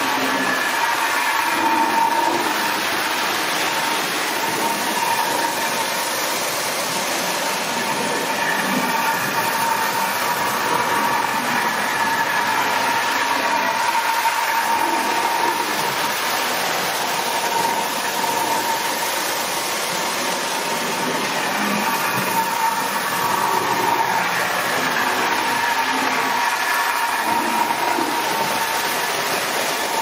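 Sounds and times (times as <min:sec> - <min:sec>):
metal wheels rattling on tin track: 0:00.0 - 0:30.0
toy train motor whine: 0:00.0 - 0:30.0.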